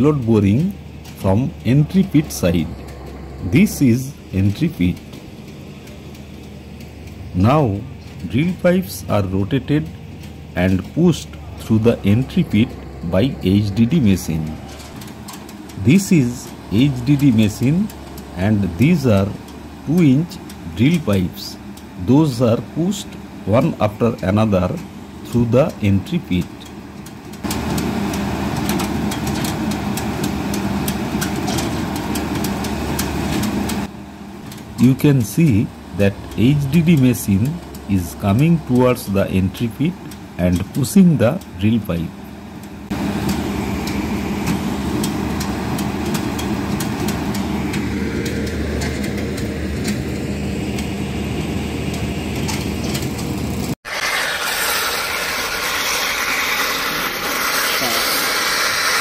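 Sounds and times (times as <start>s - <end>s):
diesel engine running: 0.0s - 59.0s
steady rushing hiss: 53.9s - 59.0s.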